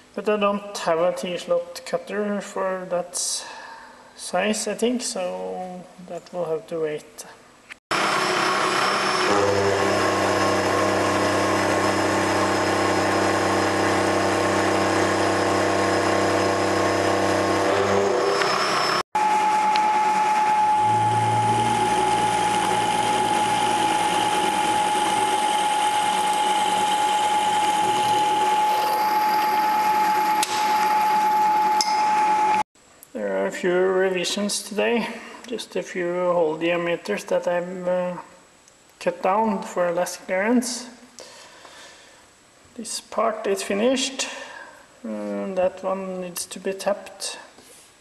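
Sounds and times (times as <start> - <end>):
milling machine spindle running: 7.9 - 32.6
high whine of drilling: 7.9 - 32.7.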